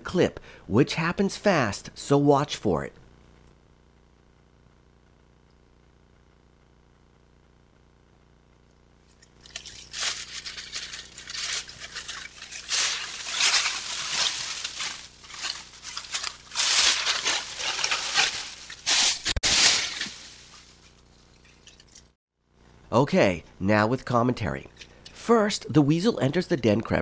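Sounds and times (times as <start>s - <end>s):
dry leaves rustling and crackling: 9.4s - 22.0s.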